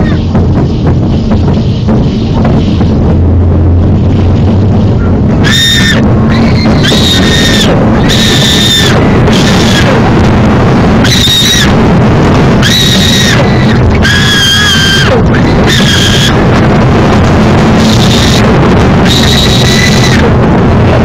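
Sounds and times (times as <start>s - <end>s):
high-pitched shrieks: 5.0s - 16.8s, 17.6s - 21.0s
crowd shouting: 5.4s - 10.2s, 10.9s - 16.6s.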